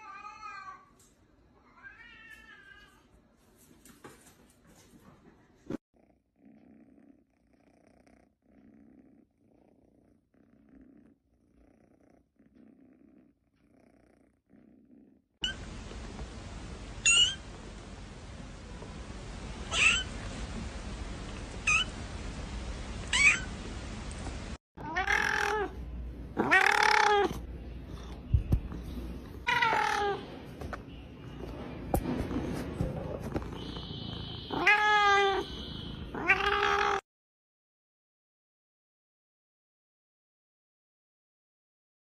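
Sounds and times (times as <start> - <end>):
cat purring: 6.0 - 15.2
cat meowing: 17.0 - 17.4, 19.7 - 20.1, 21.6 - 21.9, 23.1 - 23.5, 24.8 - 25.8, 26.4 - 27.4, 29.4 - 30.2, 33.7 - 37.0
kitten mewing: 19.7 - 20.1, 23.1 - 23.5.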